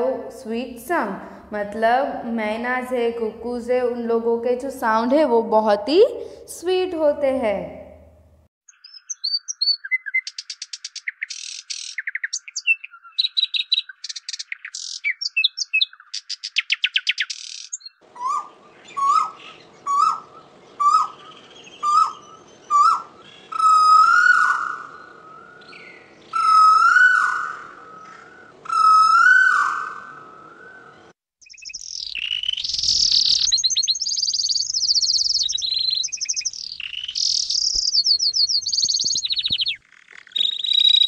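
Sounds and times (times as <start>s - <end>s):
nightingale singing: 8.7s - 41.0s
koel calling whistled notes: 17.8s - 25.1s, 31.4s - 41.0s.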